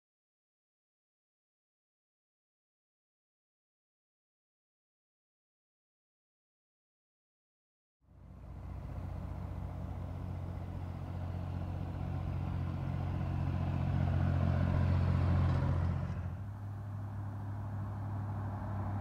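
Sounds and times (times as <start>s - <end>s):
farm tractor engine passing: 8.1s - 19.0s.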